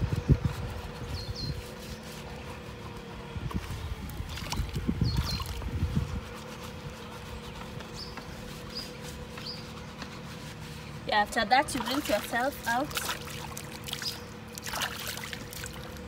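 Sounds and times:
wet sack scrubbing: 0:00.4 - 0:16.0
water splashing in stream: 0:11.7 - 0:16.0.

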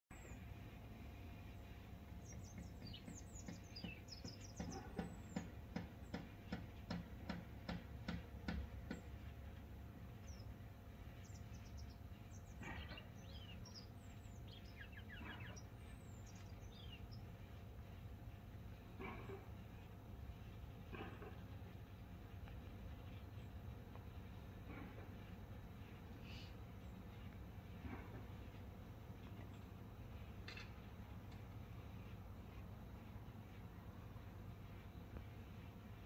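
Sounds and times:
steady low rumble: 0:08.2 - 0:36.0.

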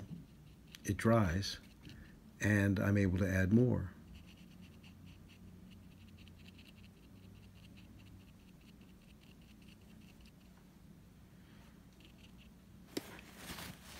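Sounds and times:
brush scratching on paper: 0:04.1 - 0:10.5.

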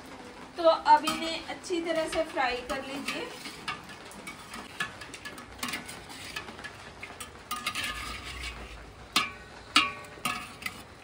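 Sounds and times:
vegetables sizzling in oil: 0:00.0 - 0:11.0
spoon scraping a pot: 0:01.9 - 0:11.0
spoon knocking on a pot: 0:09.1 - 0:10.6.

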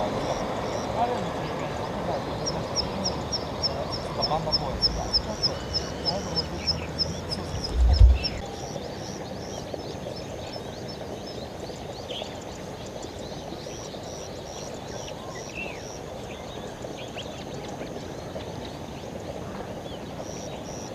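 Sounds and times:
low hiss and rumble: 0:00.0 - 0:20.9.

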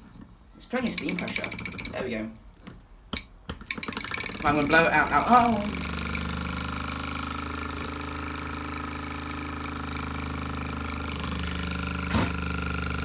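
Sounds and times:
model steam engine running: 0:03.7 - 0:13.0.

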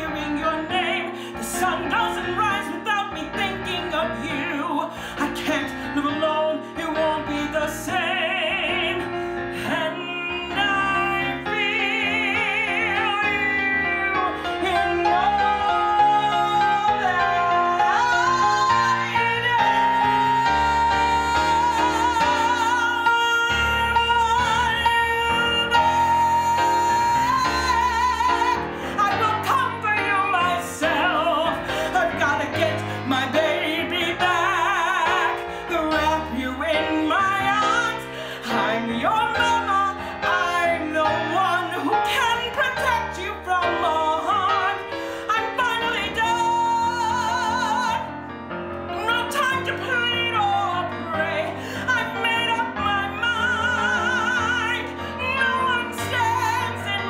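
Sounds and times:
instrumental backing music: 0:00.0 - 0:57.0
woman singing with vibrato: 0:00.0 - 0:57.0.

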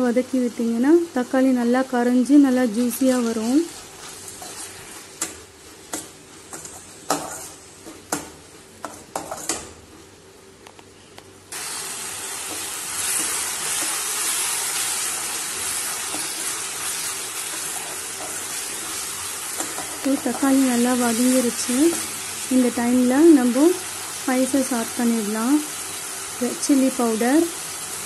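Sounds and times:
vegetables sizzling in oil: 0:00.0 - 0:10.3, 0:11.5 - 0:28.0
spatula scraping steel pan: 0:04.0 - 0:07.6.

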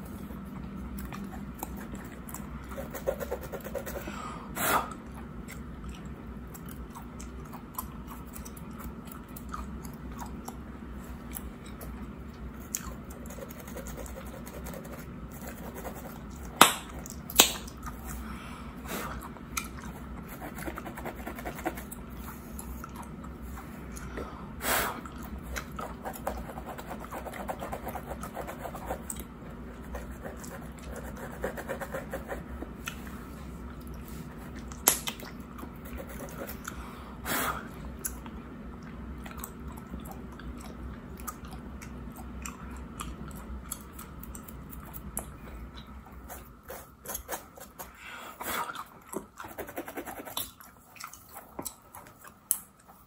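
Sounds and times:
gum chewing smacks: 0:00.4 - 0:02.8, 0:04.8 - 0:15.2, 0:19.0 - 0:24.3, 0:32.4 - 0:36.8, 0:37.6 - 0:49.5, 0:50.1 - 0:53.0.

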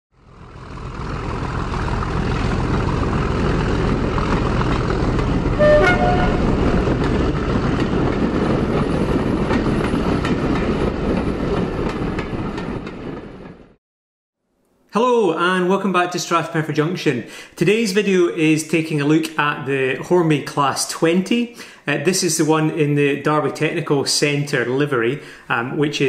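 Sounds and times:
diesel locomotive running: 0:00.2 - 0:13.7
two-tone horn toot: 0:05.5 - 0:07.0.

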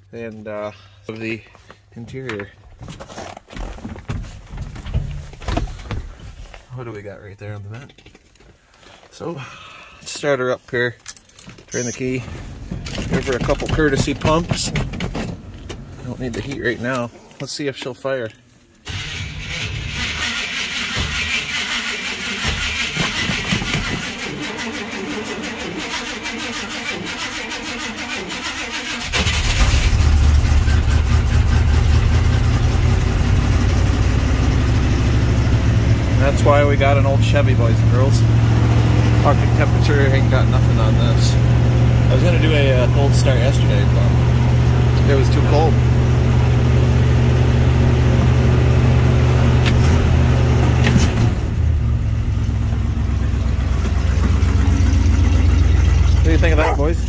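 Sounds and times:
engine cranking on starter: 0:11.8 - 0:17.0, 0:18.8 - 0:35.6, 0:49.5 - 0:57.0
engine running steadily: 0:28.9 - 0:57.0.

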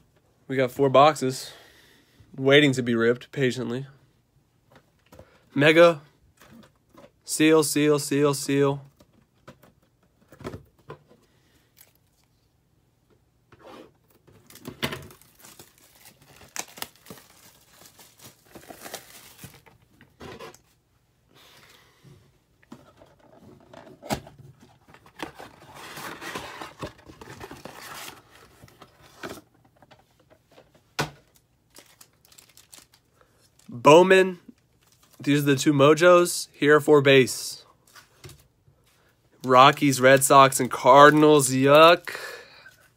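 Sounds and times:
cellophane wrap tearing and crinkling: 0:14.4 - 0:19.8, 0:31.7 - 0:33.7
foil packs handled: 0:14.4 - 0:19.8, 0:31.7 - 0:33.8.

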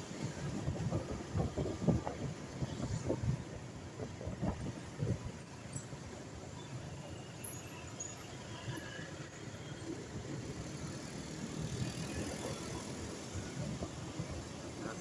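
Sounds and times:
wind buffeting microphone: 0:00.0 - 0:06.2
motorcycle engine and road rumble: 0:00.0 - 0:15.0.

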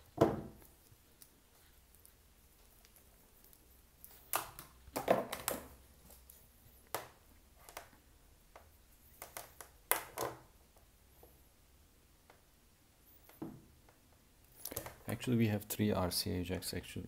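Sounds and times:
cable rustling and clicking: 0:00.0 - 0:10.9, 0:13.2 - 0:15.1.

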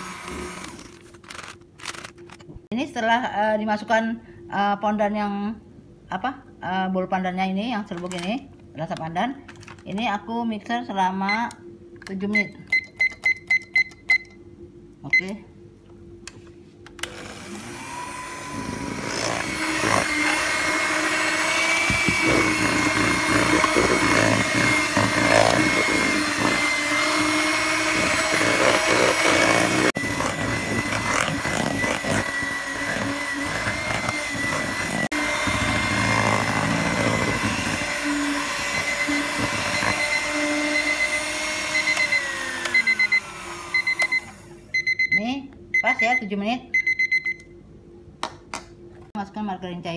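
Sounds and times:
electric mixer beating batter: 0:00.0 - 0:00.9, 0:17.0 - 0:44.5
kitchen timer beeping: 0:12.4 - 0:14.4, 0:39.9 - 0:47.5.

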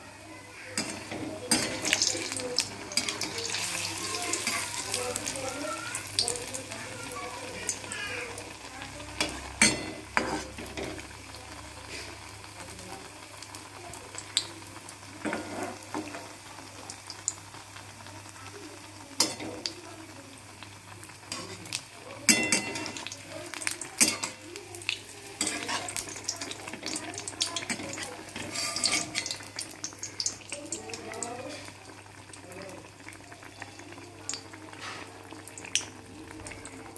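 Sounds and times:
deep-frying sizzle in oil: 0:00.0 - 0:36.9
metal spatula clinking on pan: 0:22.3 - 0:23.1, 0:27.6 - 0:29.4.

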